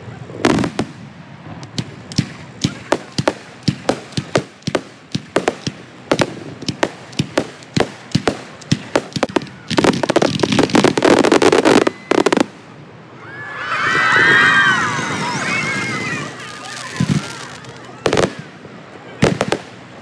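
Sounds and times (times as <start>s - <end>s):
fireworks crackling: 0.1s - 13.0s, 14.2s - 20.0s
fireworks bangs: 0.3s - 12.8s, 15.0s - 20.0s.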